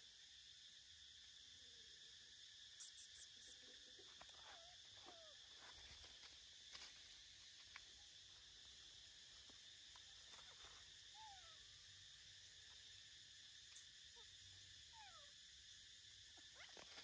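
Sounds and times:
faint insect buzzing: 0.0 - 17.0
faint curving chirps: 1.2 - 7.4.

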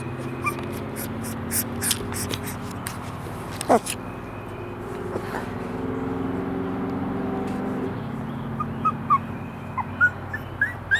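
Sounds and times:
puppy whimpering: 0.0 - 2.6, 3.6 - 4.0, 8.6 - 10.9.

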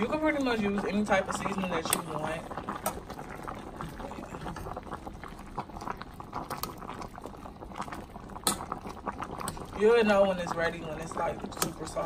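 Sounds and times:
pot boiling and bubbling: 0.0 - 12.0.

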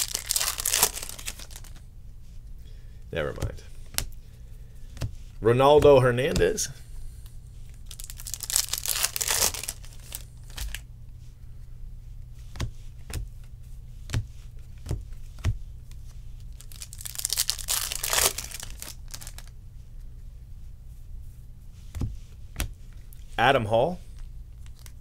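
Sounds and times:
cards rustling and sliding: 0.0 - 1.8.

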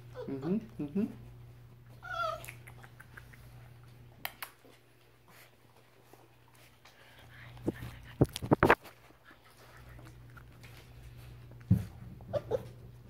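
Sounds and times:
puppy whining: 0.0 - 1.3, 1.9 - 3.6, 12.2 - 13.0.

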